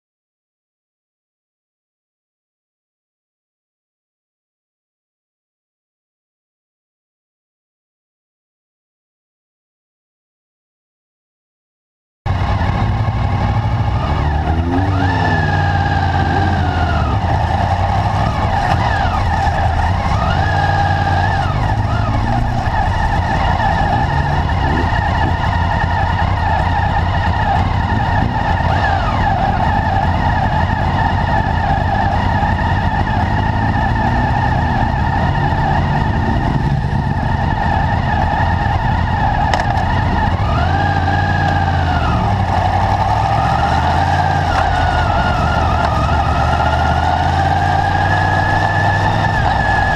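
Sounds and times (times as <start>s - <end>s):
motorcycle throttle revving: 12.3s - 49.9s
motorcycle engines idling: 15.4s - 49.9s.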